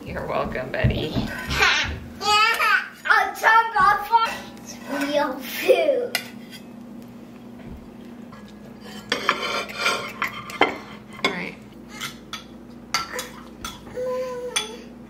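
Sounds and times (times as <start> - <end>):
fork scraping plates: 6.2 - 6.7, 8.3 - 13.8
fork clinking on ceramic plates: 8.4 - 11.4, 12.0 - 13.9.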